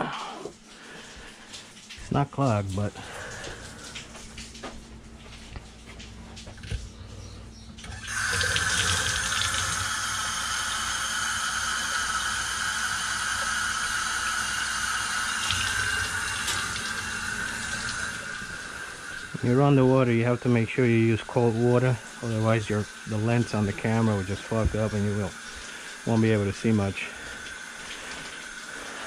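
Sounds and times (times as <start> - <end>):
water running into sink basin: 0.7 - 4.8, 7.8 - 29.0.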